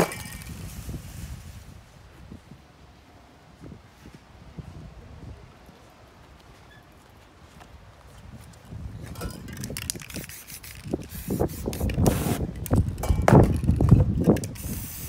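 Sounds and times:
spray paint can hissing: 9.6s - 12.8s, 14.3s - 15.0s.

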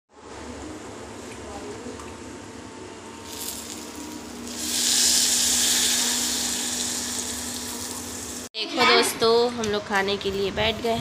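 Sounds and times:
hot water pouring into bowl: 3.2s - 8.5s.

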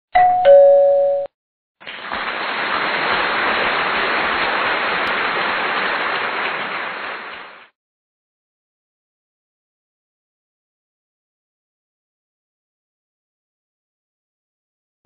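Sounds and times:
two-note electronic chime: 0.2s - 1.3s.

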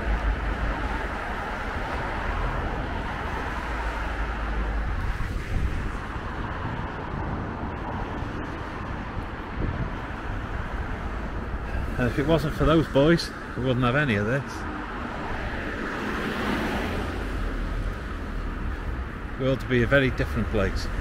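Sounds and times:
road traffic rumble: 0.0s - 21.0s
vehicle passing by: 14.5s - 19.0s.

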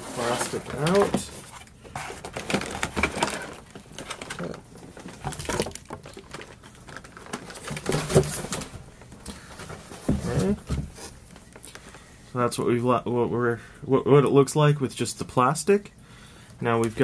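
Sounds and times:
plastic packaging crinkling: 0.2s - 8.8s.

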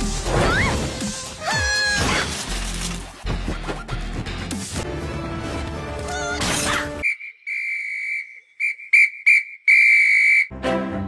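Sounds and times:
cartoon music and effects: 0.0s - 2.4s
loud finger whistle: 7.0s - 10.5s.

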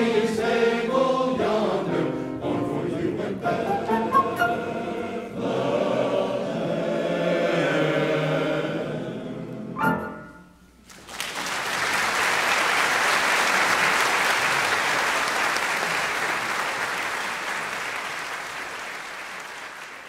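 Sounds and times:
men's choir with piano: 0.0s - 10.3s
audience applauding: 10.8s - 20.0s.

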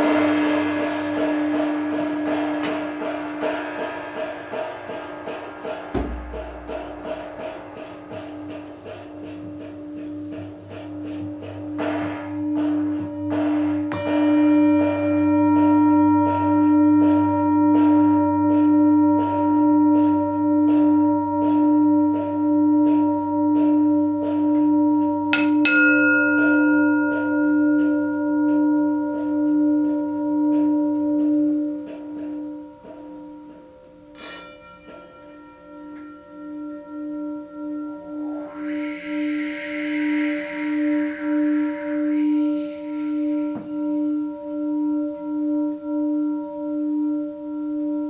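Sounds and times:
drum beat: 0.0s - 13.9s
low didgeridoo drone: 0.0s - 25.4s, 35.9s - 48.0s
bright bell-like strike: 25.3s - 28.9s
steady ringing tone: 25.4s - 29.2s.

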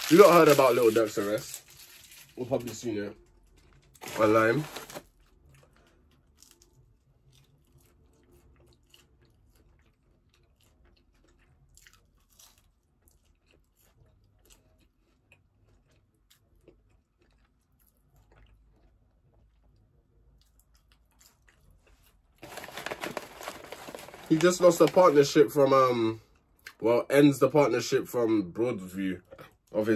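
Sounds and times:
chewing crunchy food: 5.0s - 22.6s.

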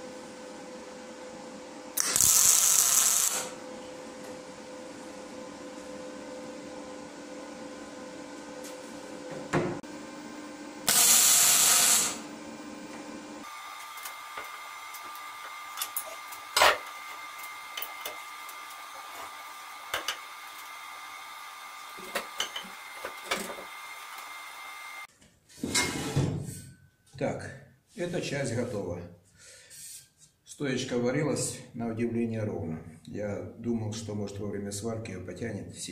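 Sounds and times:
welding burst: 2.0s - 3.6s, 10.8s - 12.3s.

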